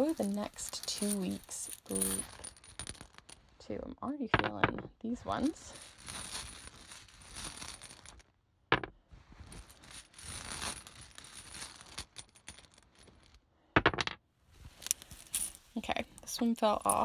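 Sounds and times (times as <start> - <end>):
tiles clacking: 0.0 - 3.4, 14.8 - 17.0
tiles rustling and clinking: 0.0 - 3.7, 4.3 - 17.0.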